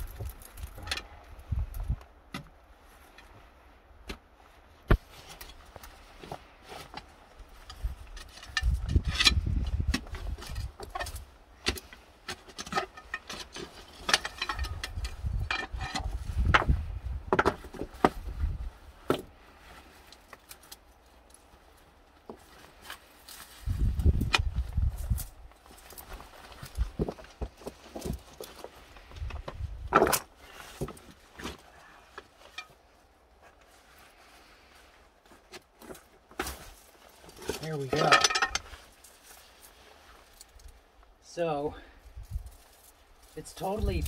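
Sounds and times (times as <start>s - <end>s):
metal bar clinking on rocks: 12.5s - 16.1s, 37.5s - 38.8s
rustling grass: 18.1s - 35.9s.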